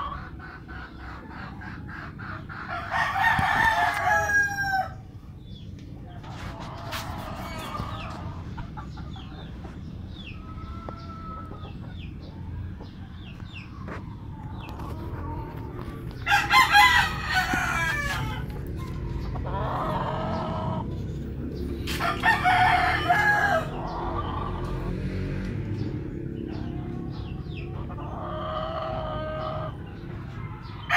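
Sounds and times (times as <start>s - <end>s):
roosters crowing: 0.0s - 30.9s.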